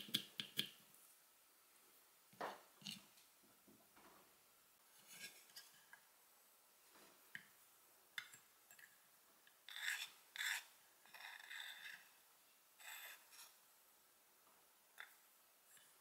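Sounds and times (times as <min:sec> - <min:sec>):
knife scraping wooden board: 0:09.7 - 0:12.1.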